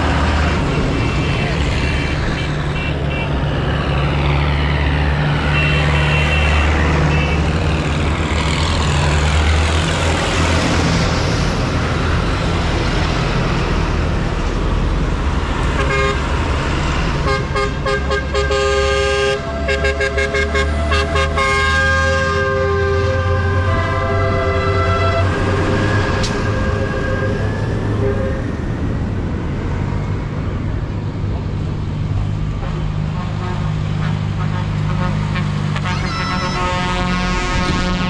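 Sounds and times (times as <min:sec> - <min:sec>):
multi-tone horn: 0:05.5 - 0:07.5, 0:15.8 - 0:16.3, 0:17.2 - 0:25.7, 0:32.6 - 0:38.0.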